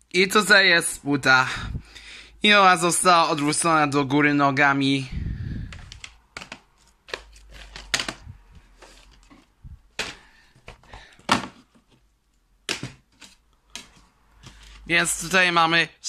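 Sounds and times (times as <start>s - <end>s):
plastic cases clicking on desk: 5.7s - 11.7s, 12.6s - 14.8s.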